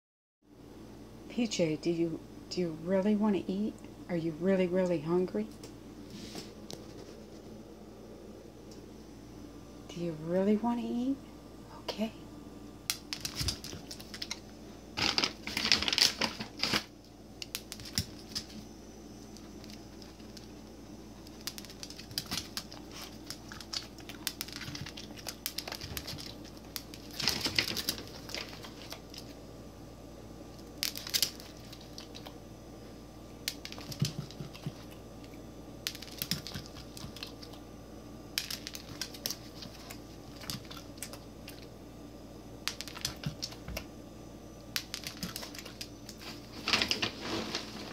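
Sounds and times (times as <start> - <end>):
dog eating crunchy food: 13.1 - 16.8, 19.3 - 29.4, 30.6 - 32.4, 33.4 - 37.7, 38.3 - 41.8, 42.6 - 43.8, 44.8 - 47.1.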